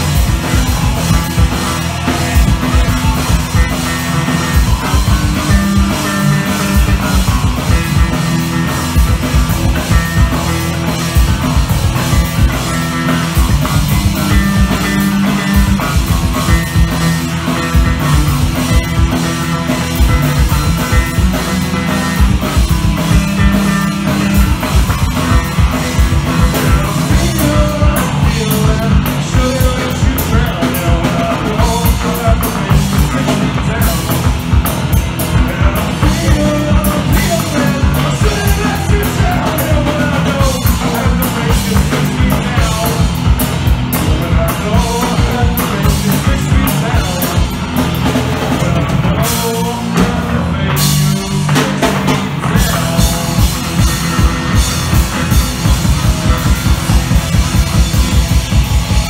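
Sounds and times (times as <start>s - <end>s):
bass guitar: 0.0s - 59.0s
drum kit: 0.0s - 59.0s
electric guitar: 0.0s - 59.0s.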